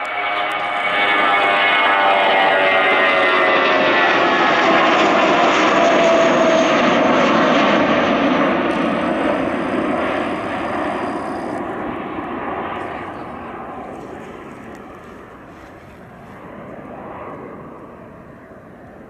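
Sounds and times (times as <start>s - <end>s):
jet engines roaring: 0.0s - 19.0s
steady humming tone: 7.9s - 19.0s.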